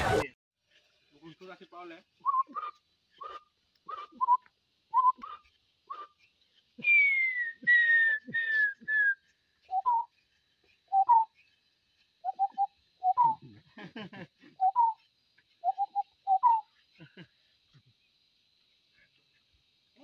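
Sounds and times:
man whistling bird calls: 2.2 - 6.2, 6.8 - 10.2, 10.9 - 11.5, 12.2 - 13.5, 14.6 - 15.0, 15.6 - 16.8.

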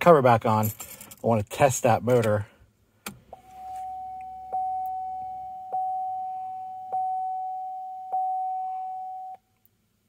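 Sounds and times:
dashboard warning chime: 3.3 - 9.4.

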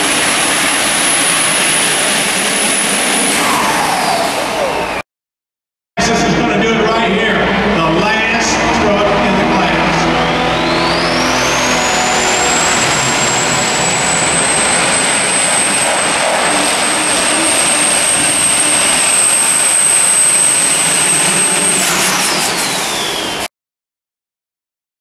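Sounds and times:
diesel truck engine roaring: 0.0 - 5.0, 6.0 - 23.5
high turbocharger whistle: 8.4 - 23.5.

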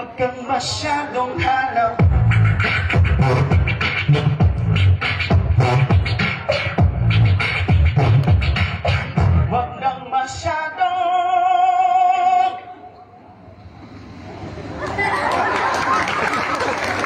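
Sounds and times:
beatboxing into microphone: 0.0 - 13.1.

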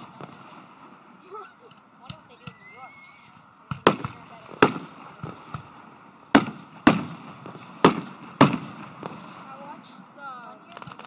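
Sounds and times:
firework shells bursting: 3.3 - 9.7, 10.6 - 11.0
small firework pops: 10.7 - 11.0.

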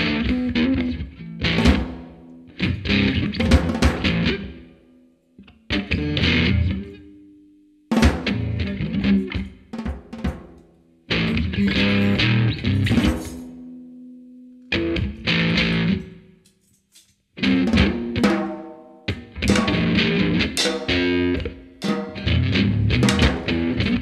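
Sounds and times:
electric guitar: 0.0 - 4.8, 5.4 - 7.1, 7.9 - 9.6, 11.1 - 13.9, 14.6 - 16.4, 17.4 - 24.0
drum kit: 1.4 - 4.6, 7.9 - 13.7, 17.4 - 24.0.

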